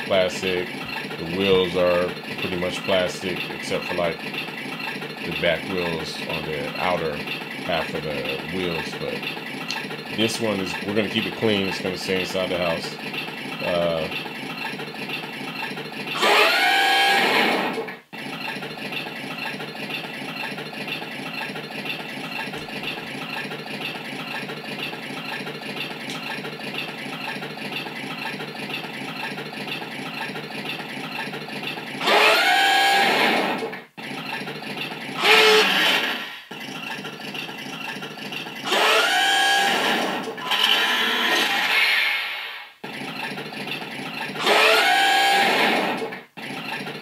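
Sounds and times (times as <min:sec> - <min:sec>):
toy engine idling: 0:00.0 - 0:47.0
engine revs rising in pitch: 0:16.2 - 0:17.8, 0:32.0 - 0:33.7, 0:35.2 - 0:36.4, 0:38.6 - 0:42.6, 0:44.4 - 0:46.1.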